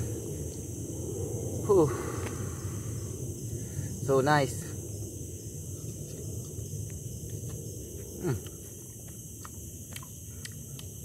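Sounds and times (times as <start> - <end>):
man chewing: 7.4 - 11.0
man humming mm: 8.2 - 8.6.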